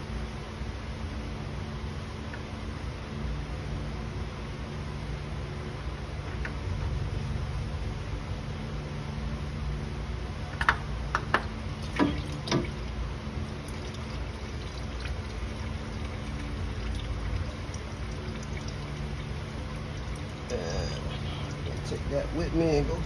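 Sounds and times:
steady low hum: 0:00.0 - 0:23.0
oil pouring into drain pan: 0:11.8 - 0:22.0.

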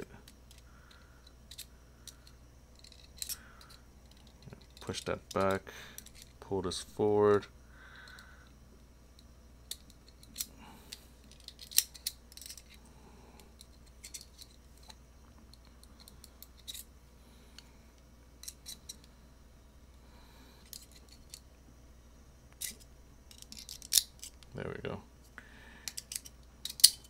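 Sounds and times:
screwdrivers clicking on metal: 0:22.6 - 0:24.4, 0:25.9 - 0:27.0.

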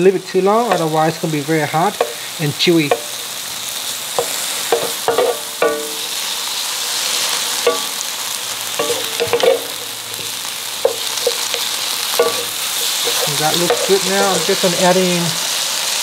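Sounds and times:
meat and onion sizzling: 0:00.0 - 0:16.0
wooden utensils scraping a pan: 0:08.8 - 0:14.9.

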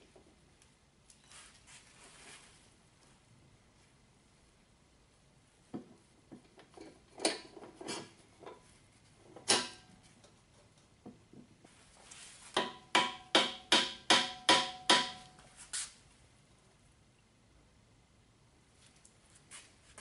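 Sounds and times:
hammer knocking metal axle: 0:12.5 - 0:15.4.

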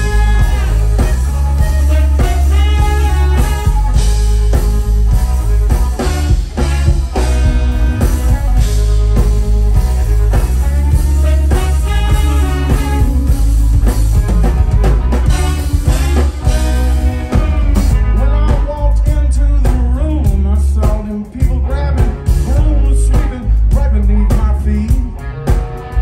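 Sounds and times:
saxophone: 0:00.0 - 0:18.5
trombone: 0:00.0 - 0:19.2
drum kit: 0:00.0 - 0:26.0
electric bass: 0:00.0 - 0:26.0
electric guitars: 0:00.0 - 0:26.0.

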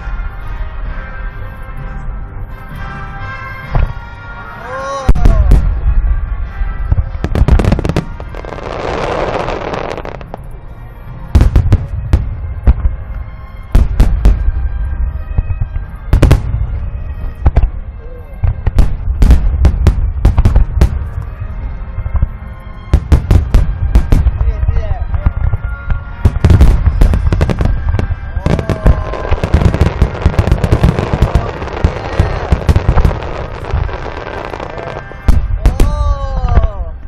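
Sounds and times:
fireworks booming: 0:05.1 - 0:10.4, 0:13.8 - 0:14.6, 0:15.6 - 0:16.8, 0:18.4 - 0:21.2, 0:22.2 - 0:36.7
fireworks hissing: 0:26.8 - 0:35.2.

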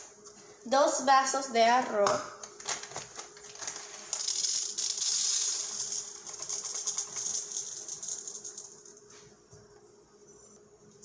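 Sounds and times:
rice pouring into a cup: 0:03.8 - 0:08.9.

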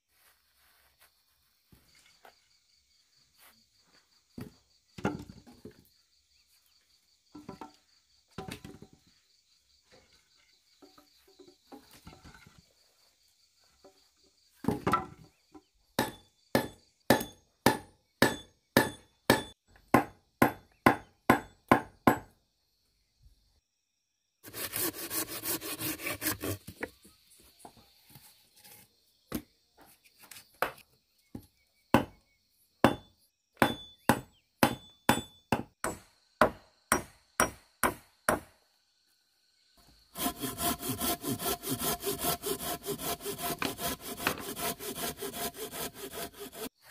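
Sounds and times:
machete chopping wood: 0:16.0 - 0:22.3, 0:32.8 - 0:38.5
rapid rasping sawing: 0:24.4 - 0:26.6, 0:40.2 - 0:46.8.

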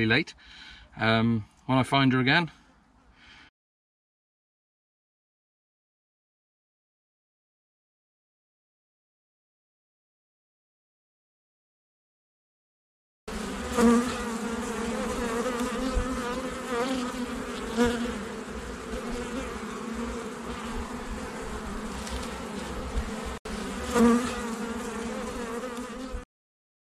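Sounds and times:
honeybees buzzing: 0:13.3 - 0:26.2.

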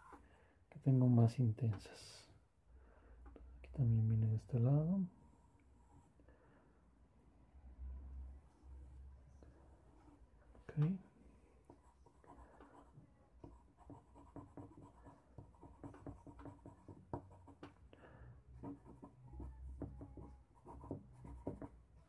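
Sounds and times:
charcoal scratching on paper: 0:11.6 - 0:17.6.

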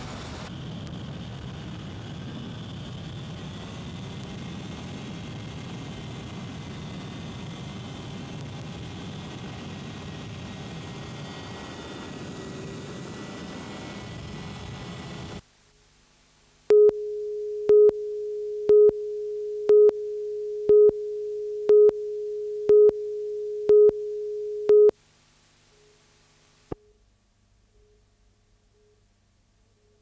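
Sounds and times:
countdown beeps: 0:16.7 - 0:24.9
steady mid-pitched tone: 0:16.7 - 0:24.9.

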